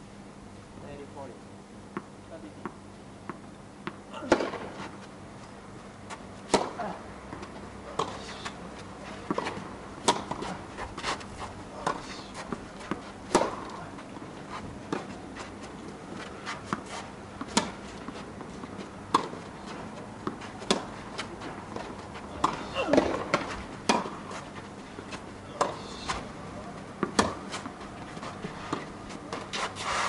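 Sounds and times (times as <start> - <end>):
tennis ball bouncing: 1.9 - 4.7, 6.4 - 8.3, 9.2 - 10.6, 11.8 - 14.3, 16.2 - 24.5, 25.1 - 26.3, 27.0 - 29.6
tennis racket hitting ball: 6.5 - 6.9, 9.2 - 11.0, 11.8 - 13.8, 16.7 - 17.8, 20.2 - 24.4, 27.0 - 27.8.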